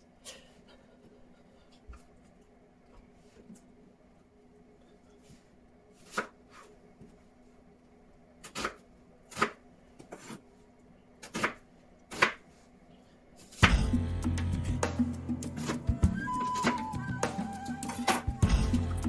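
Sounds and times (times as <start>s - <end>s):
background music: 13.6s - 19.0s.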